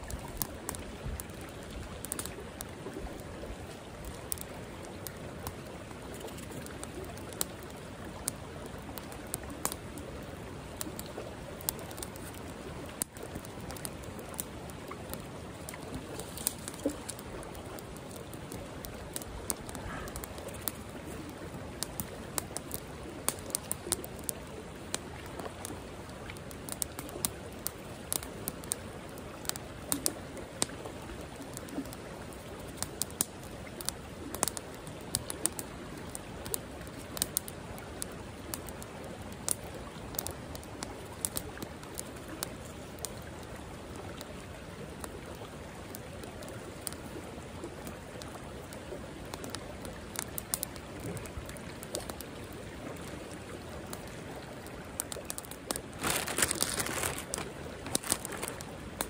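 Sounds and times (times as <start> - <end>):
campfire crackling and popping: 0.0 - 59.0
fast-flowing creek rushing: 51.7 - 59.0.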